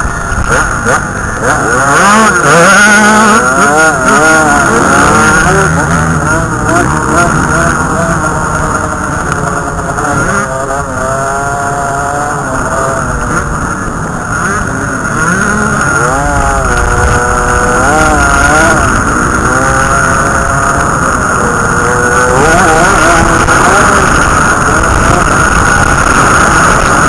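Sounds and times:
dirt bike engine revving: 0.0s - 27.0s.

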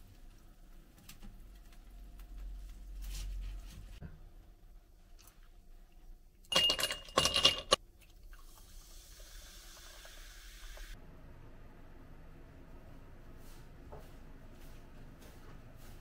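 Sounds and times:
kitchenware clattering: 6.5s - 7.8s.

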